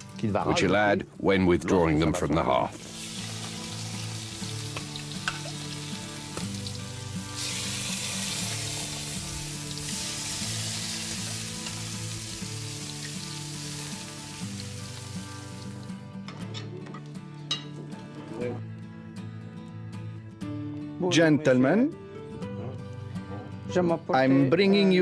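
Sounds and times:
low background music: 0.0 - 25.0
scallops sizzling on a grill: 2.8 - 15.9.

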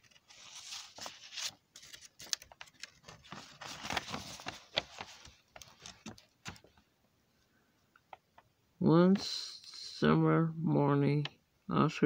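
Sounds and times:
paper rustling and crinkling: 0.0 - 6.8.

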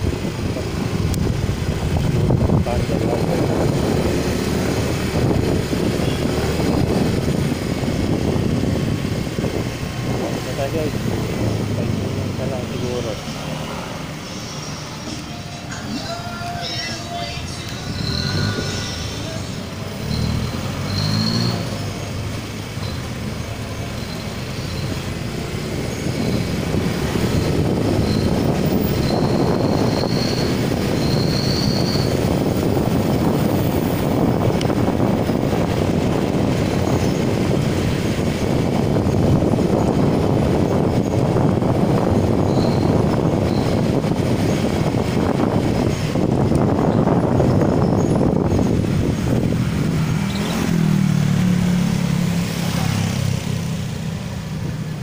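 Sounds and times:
wind rushing over microphone: 0.0 - 55.0
high whistling tones: 13.8 - 21.8, 23.8 - 25.1, 27.2 - 32.3, 42.4 - 44.0.

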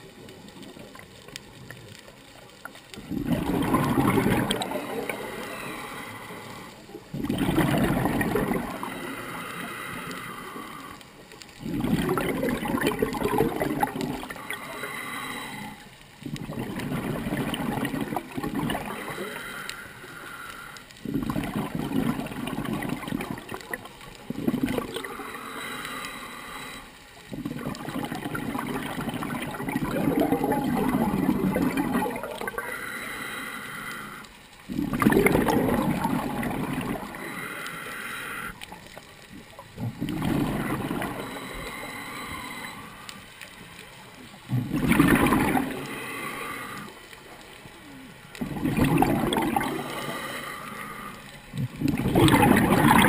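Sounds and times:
bubbles gurgling underwater: 3.0 - 5.6, 6.9 - 9.0, 11.6 - 14.6, 16.2 - 19.4, 21.0 - 25.2, 27.3 - 32.7, 34.7 - 37.4, 38.6 - 41.8, 44.4 - 46.6, 48.4 - 50.3, 51.5 - 53.0
diver inhaling through regulator: 3.6 - 6.8, 7.7 - 11.2, 13.0 - 15.9, 18.8 - 21.2, 24.7 - 27.0, 30.0 - 34.4, 35.2 - 38.8, 40.1 - 43.3, 44.7 - 51.4.

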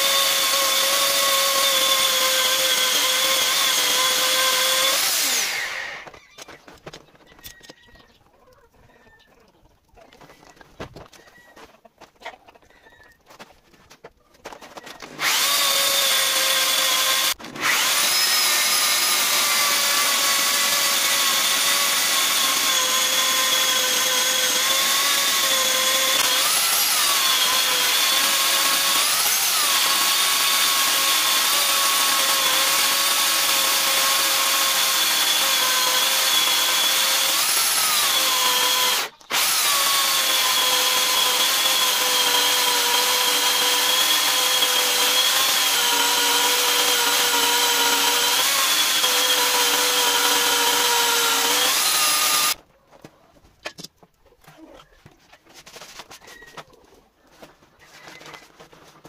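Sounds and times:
electric chainsaw cutting log: 0.0 - 6.2, 15.0 - 52.6.

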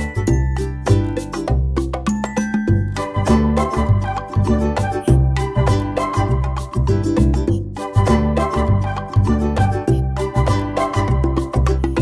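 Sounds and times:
upbeat dance music: 2.4 - 12.0.

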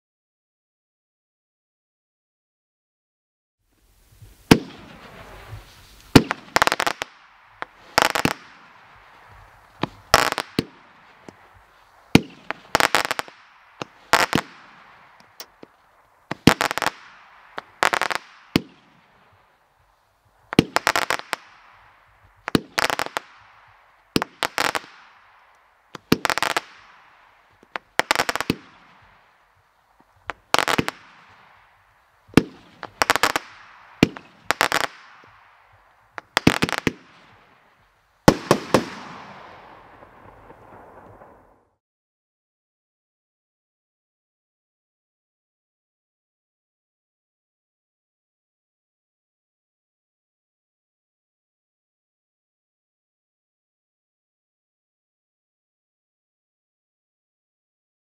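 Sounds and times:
fireworks firing with cracks: 4.2 - 19.7, 20.3 - 41.7.

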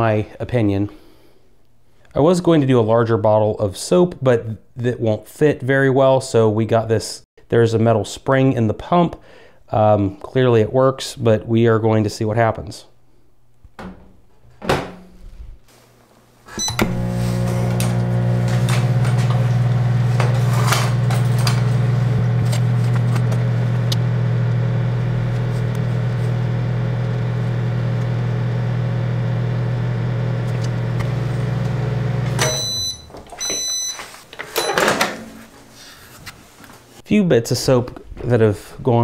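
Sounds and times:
microwave oven humming: 16.5 - 34.0
short high beeps: 16.6 - 16.9, 32.4 - 34.0.

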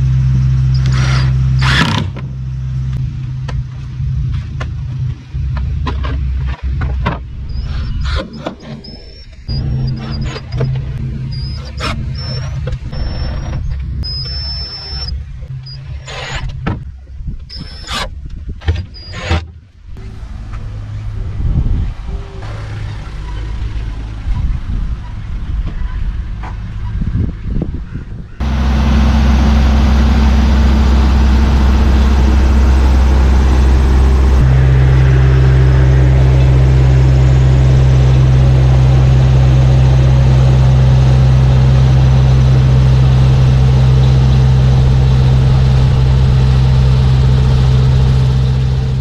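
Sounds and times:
low rumble: 0.0 - 17.6, 19.7 - 49.0
small two-stroke engine running: 28.4 - 49.0.

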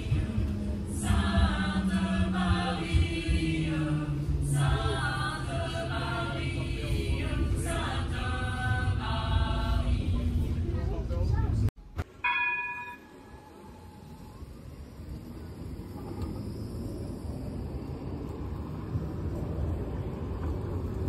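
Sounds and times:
choir singing: 0.0 - 10.6
tram rumbling: 0.0 - 21.0.

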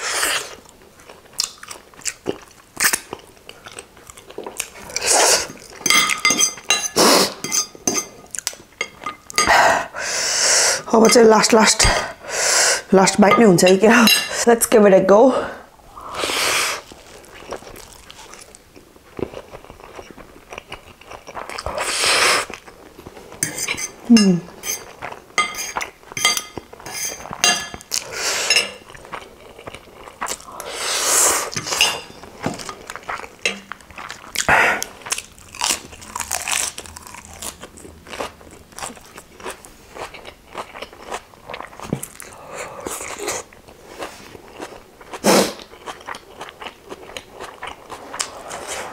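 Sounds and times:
wet chewing and crunching: 0.4 - 9.5, 16.8 - 23.4, 24.5 - 30.7, 31.4 - 48.6.

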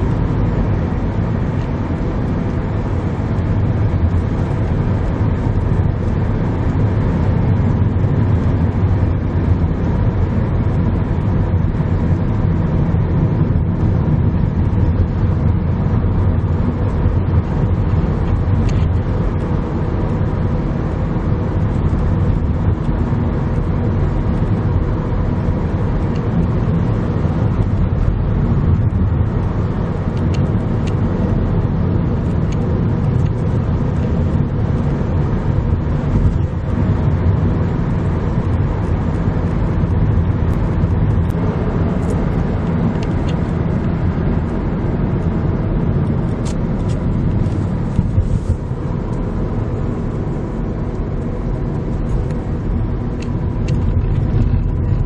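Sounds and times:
car engine and tyre drone: 0.0 - 55.0.

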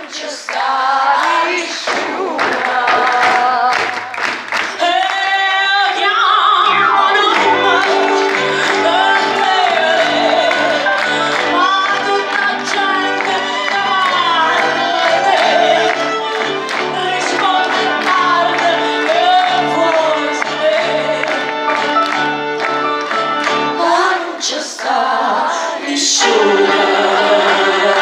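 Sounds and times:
woman singing: 0.0 - 4.1, 4.7 - 21.8, 23.7 - 28.0
percussion: 0.0 - 25.2
violin: 6.2 - 28.0.

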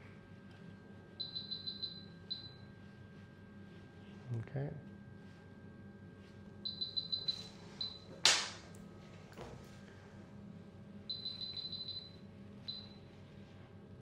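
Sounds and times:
sharp crack: 8.2 - 8.6.

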